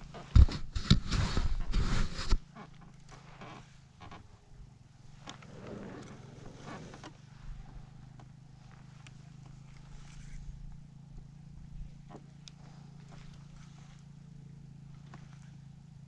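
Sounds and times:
rustling noise: 0.0s - 2.6s
steady low hum: 0.0s - 16.0s.

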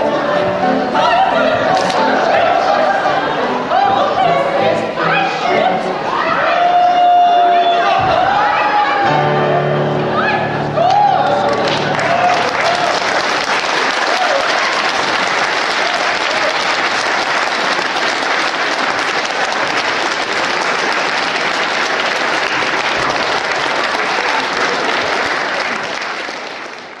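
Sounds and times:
audience applauding: 10.8s - 27.0s.

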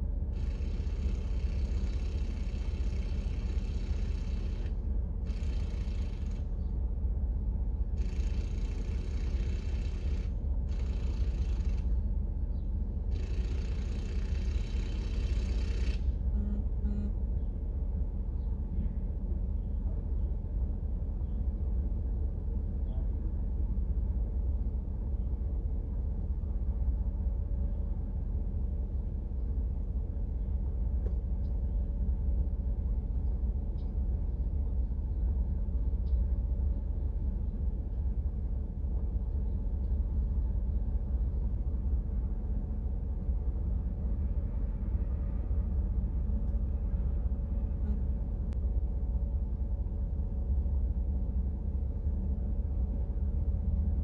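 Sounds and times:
vehicle engine idling: 0.3s - 6.8s, 7.7s - 18.8s.

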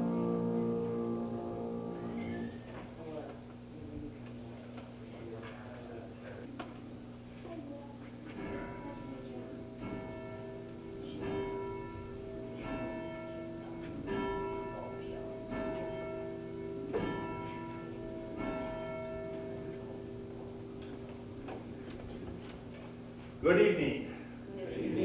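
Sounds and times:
bell tolling: 8.4s - 21.7s.

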